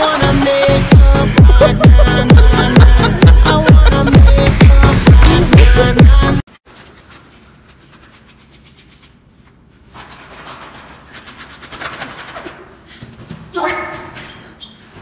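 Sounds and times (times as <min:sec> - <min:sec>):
electronic dance music: 0:00.0 - 0:06.4.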